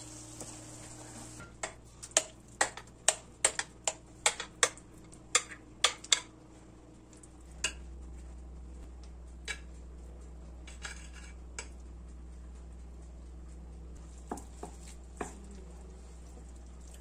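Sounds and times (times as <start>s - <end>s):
vegetables sizzling in a pan: 0.0s - 1.4s.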